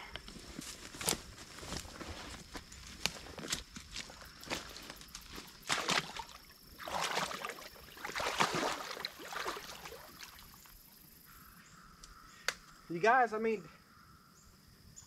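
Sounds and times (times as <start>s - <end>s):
footsteps sloshing through water: 1.0s - 10.8s.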